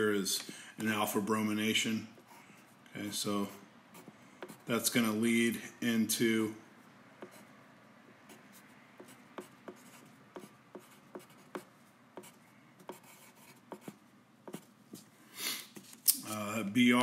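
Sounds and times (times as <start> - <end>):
faint pen scratching: 8.3 - 14.7.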